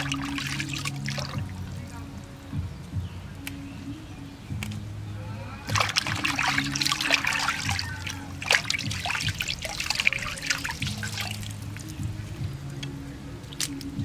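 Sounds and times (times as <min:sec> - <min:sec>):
water splashing in a metal basin: 0:00.0 - 0:02.0, 0:05.7 - 0:14.0
water dripping: 0:00.0 - 0:14.0.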